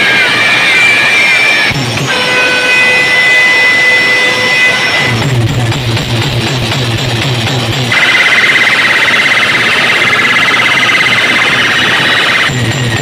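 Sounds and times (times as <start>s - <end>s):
fast-warbling siren-like tone: 7.9s - 12.8s.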